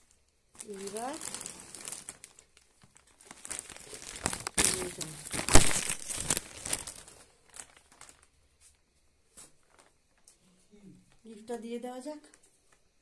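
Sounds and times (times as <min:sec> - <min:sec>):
plastic bag crinkling: 0:00.0 - 0:08.4, 0:09.6 - 0:10.3.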